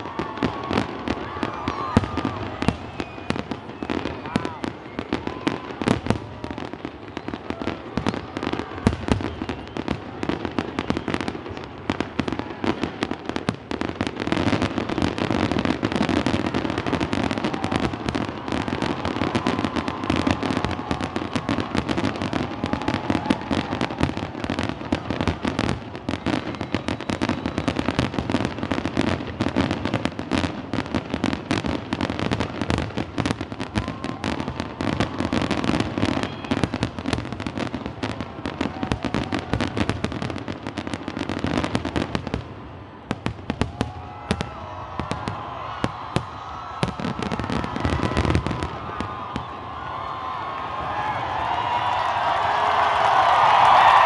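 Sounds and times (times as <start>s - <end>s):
fireworks booming and crackling: 0.0s - 54.0s.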